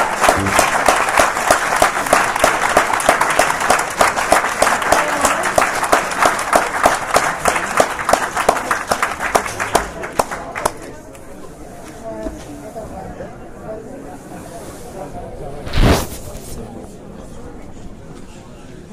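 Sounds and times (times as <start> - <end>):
audience applauding: 0.0 - 10.9
close hands clapping: 0.0 - 11.3.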